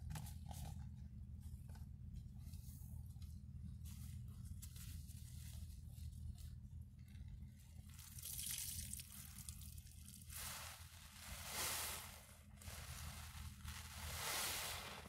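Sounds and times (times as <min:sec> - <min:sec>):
faint low hum: 0:00.0 - 0:15.0
wet sponge squelching: 0:07.8 - 0:15.0.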